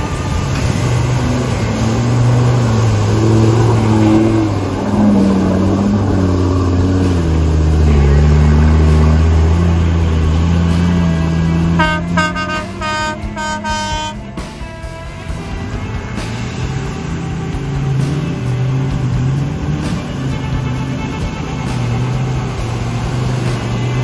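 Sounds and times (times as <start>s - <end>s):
driving through water and mud: 0.0s - 24.0s
engine revving under load: 0.0s - 24.0s.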